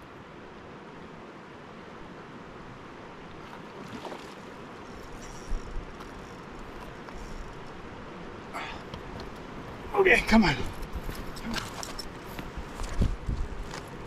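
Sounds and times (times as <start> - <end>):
river rushing over rocks: 7.6 - 14.0.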